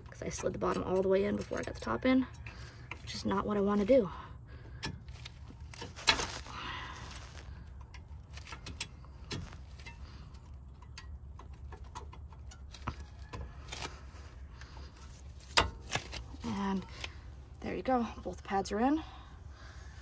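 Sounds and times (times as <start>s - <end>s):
metal scraping: 0.0s - 17.8s
brake pad metal clicks: 7.8s - 13.8s.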